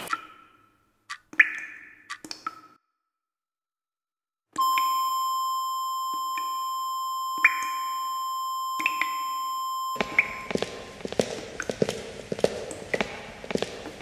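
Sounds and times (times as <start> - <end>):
high electronic beep tone: 4.6 - 10.6.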